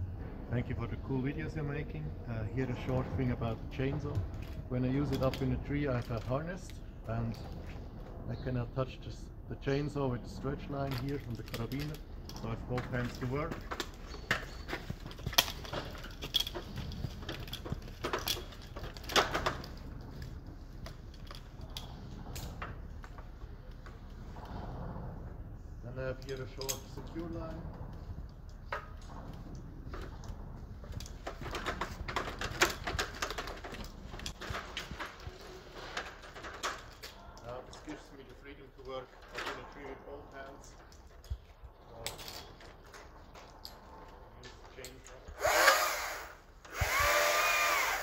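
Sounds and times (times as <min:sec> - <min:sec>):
metal harness gear clinking: 0:10.4 - 0:23.8, 0:25.9 - 0:46.1
carabiner clicking and rattling: 0:10.9 - 0:22.6, 0:27.8 - 0:35.3.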